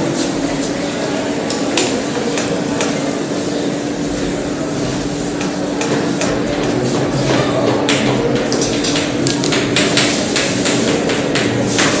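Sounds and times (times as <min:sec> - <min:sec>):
chalk tapping and scraping on blackboard: 0:05.4 - 0:12.0.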